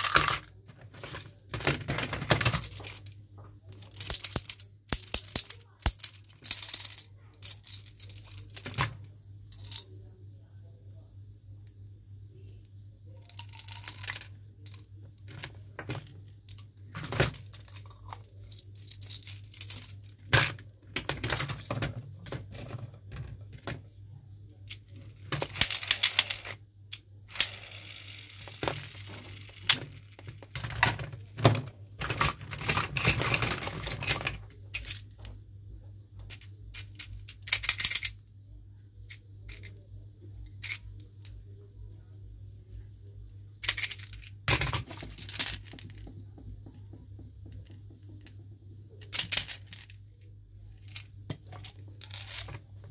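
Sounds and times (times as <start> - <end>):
loose candies rattling: 0.0 - 3.1.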